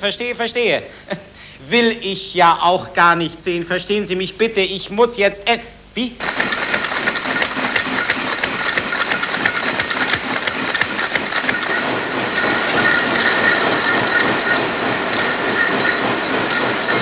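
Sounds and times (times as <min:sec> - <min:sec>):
faint machine whine: 0:00.0 - 0:17.0
can-making machinery clattering: 0:06.2 - 0:17.0.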